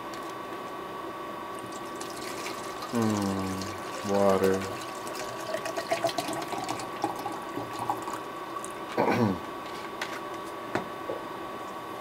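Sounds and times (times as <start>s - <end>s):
water pouring into a container: 1.6s - 8.7s.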